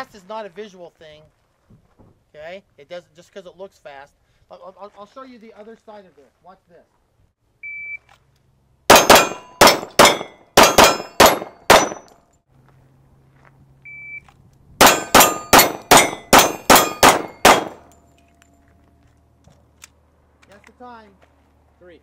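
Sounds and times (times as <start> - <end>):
shot timer beep: 7.6 - 8.0
pistol shots: 8.9 - 12.1, 14.8 - 18.0
metallic clang of steel targets: 8.9 - 12.3, 14.8 - 18.4.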